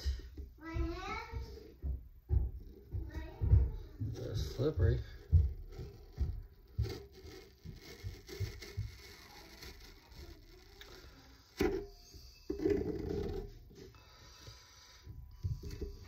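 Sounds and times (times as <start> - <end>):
muffled rubbing: 1.4 - 16.0
spoon scraping aloe leaf: 5.7 - 13.4.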